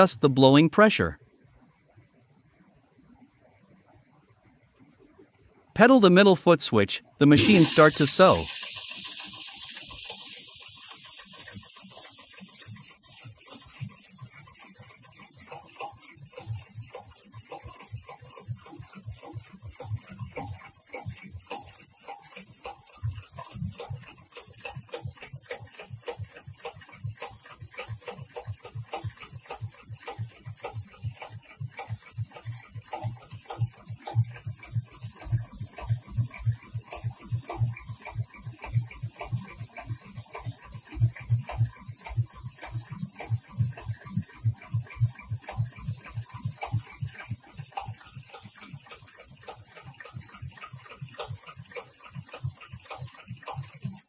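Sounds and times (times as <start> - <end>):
sewing machine needle strokes: 7.2 - 54.0
compressed air hiss: 7.4 - 11.6.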